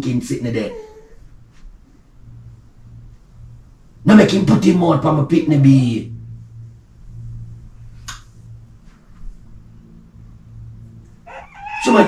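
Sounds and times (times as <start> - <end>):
low hum: 1.2 - 12.0.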